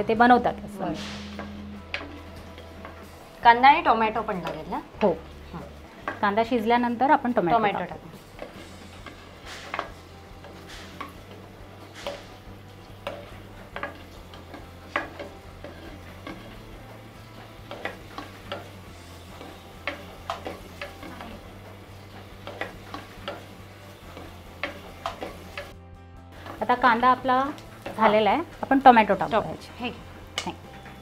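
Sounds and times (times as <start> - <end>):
onions sizzling: 0.0 - 31.0
spatula scraping a pan: 8.2 - 25.7.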